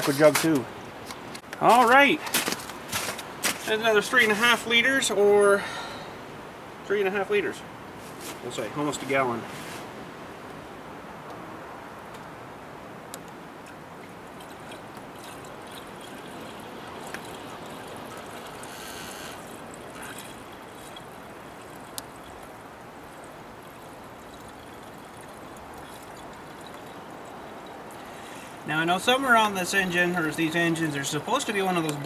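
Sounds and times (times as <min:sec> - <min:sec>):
liquid pouring through funnel: 0:14.2 - 0:28.7.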